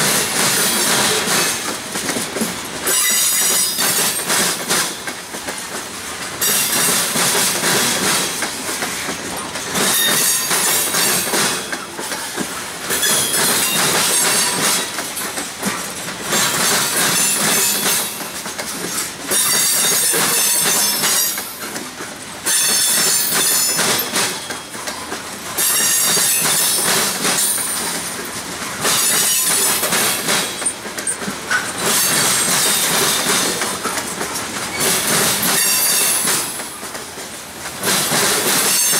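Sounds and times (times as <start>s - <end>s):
train wheels clattering over crossing: 0.0s - 38.9s
high-pitched wheel squeal: 2.9s - 3.8s.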